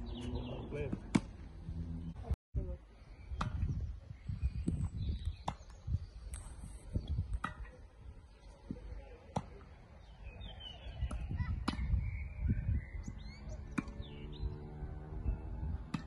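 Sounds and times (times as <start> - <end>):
birds chirping: 0.0 - 16.0
tennis ball hit by racket: 0.8 - 1.4, 11.0 - 12.0, 13.7 - 14.0.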